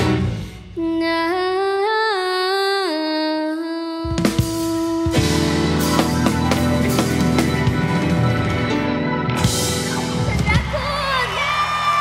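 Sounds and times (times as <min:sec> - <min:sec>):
band with drum kit: 0:00.0 - 0:00.8, 0:04.1 - 0:12.0.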